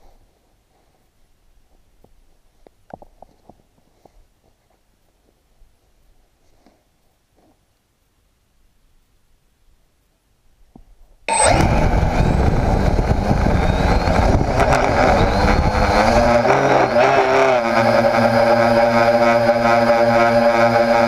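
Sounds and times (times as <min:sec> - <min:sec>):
electric motors and propellers spinning: 0:11.3 - 0:21.0
rushing prop wash: 0:11.3 - 0:21.0.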